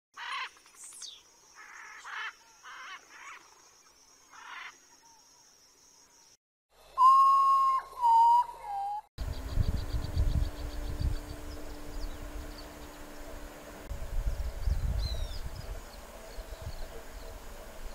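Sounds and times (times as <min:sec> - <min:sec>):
whistled notes: 0:06.9 - 0:09.1.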